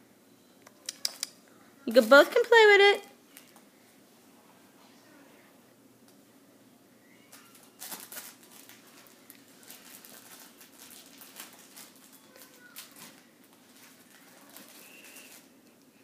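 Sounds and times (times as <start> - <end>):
faint squeak: 7.0 - 7.8, 12.1 - 13.1.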